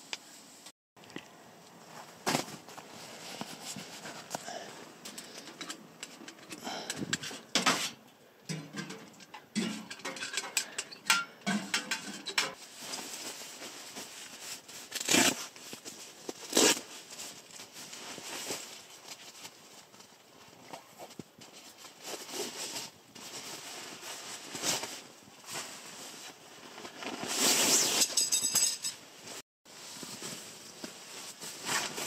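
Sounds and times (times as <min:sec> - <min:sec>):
nylon fabric rustling: 0:01.8 - 0:04.6, 0:12.6 - 0:32.0.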